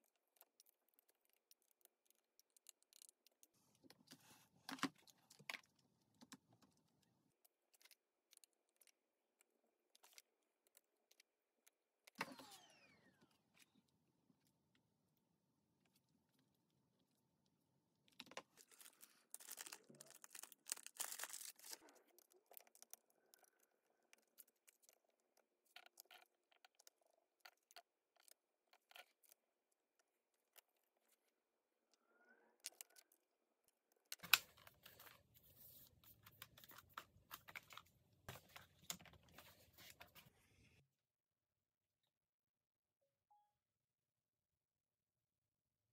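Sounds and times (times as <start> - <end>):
hands handling laptop parts: 34.0 - 40.4.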